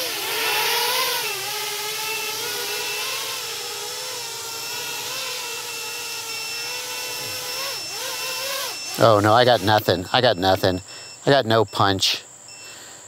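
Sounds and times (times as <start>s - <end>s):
drone motors whining: 0.0s - 11.9s
high electronic beep: 6.3s - 6.7s, 8.7s - 12.7s.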